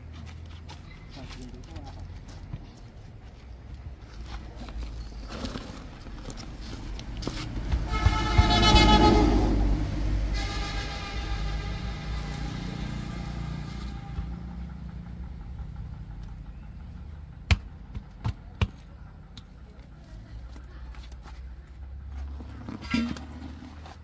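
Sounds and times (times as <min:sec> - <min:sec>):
vehicle engine running: 0:00.0 - 0:24.0
sharp knocks: 0:07.6 - 0:09.1.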